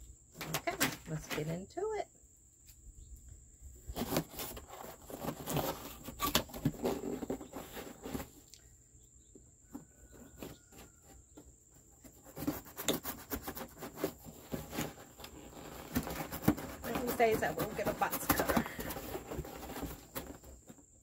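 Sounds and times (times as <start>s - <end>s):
cardboard box rubbing and scraping: 3.9s - 8.4s, 10.0s - 20.9s.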